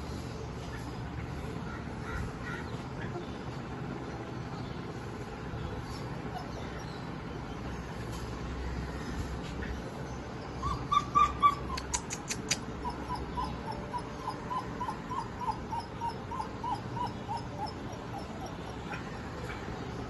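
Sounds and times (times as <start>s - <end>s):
puppies whining: 10.5s - 20.0s
sharp clicks: 11.8s - 12.7s.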